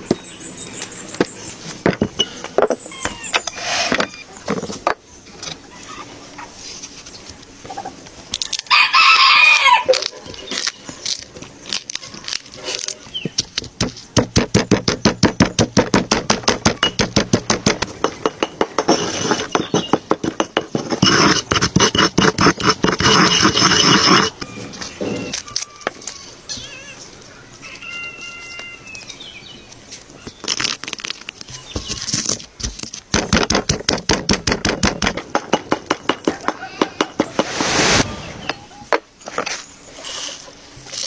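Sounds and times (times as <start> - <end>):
rooster crowing: 8.7 - 10.0.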